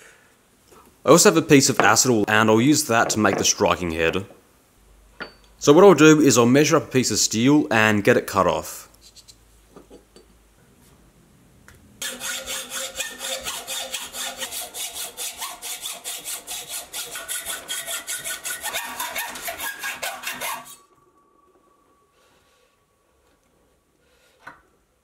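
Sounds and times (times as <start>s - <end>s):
hacksaw cutting steel bar: 12.0s - 20.8s.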